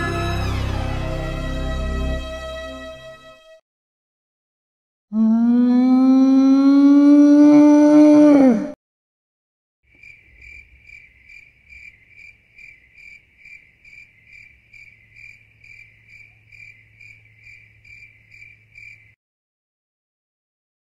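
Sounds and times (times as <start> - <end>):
cricket chirping: 9.9 - 19.2.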